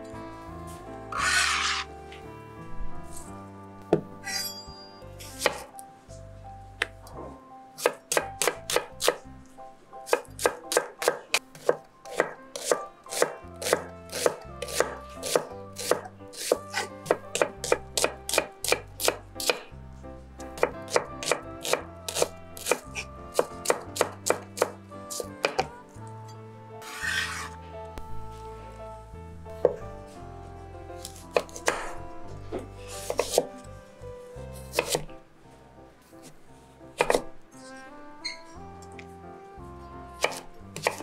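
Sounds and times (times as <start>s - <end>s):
knife blade scraping board: 1.2s - 1.9s, 4.2s - 4.6s, 10.7s - 17.5s, 26.8s - 27.6s
knife chopping on wooden board: 7.8s - 9.2s, 10.1s - 19.7s, 20.6s - 22.8s, 23.4s - 25.7s, 33.0s - 33.5s, 34.7s - 35.1s, 37.0s - 37.3s, 40.2s - 41.0s.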